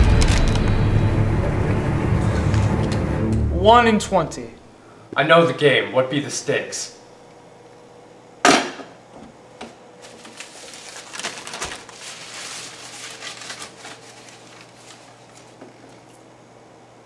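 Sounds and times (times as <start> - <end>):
wrapper crinkling: 10.0 - 16.1.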